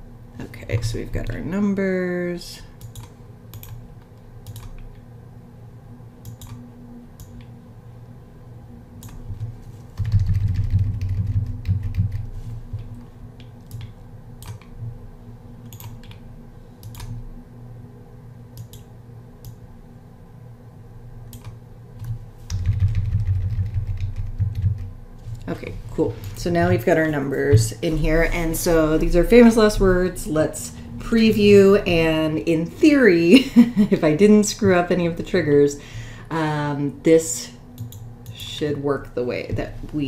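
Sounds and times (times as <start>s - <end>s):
low rumbling handling noise: 22.5s - 33.0s.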